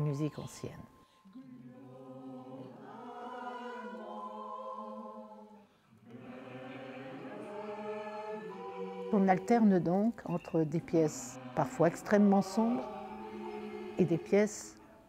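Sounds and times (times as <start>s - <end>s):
choir singing held chords: 1.2s - 15.0s.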